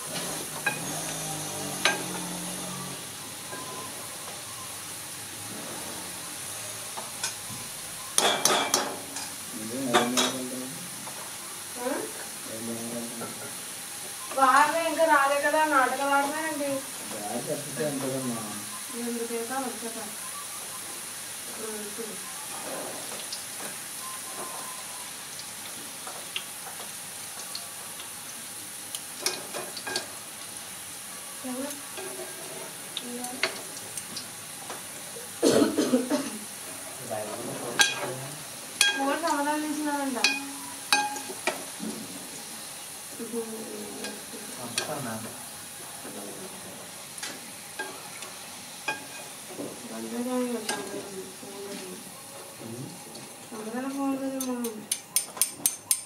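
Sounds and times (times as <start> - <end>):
fries sizzling in hot oil: 0.0 - 56.0
metal utensil clattering against pan: 37.8 - 38.2, 40.2 - 41.6, 54.4 - 56.0.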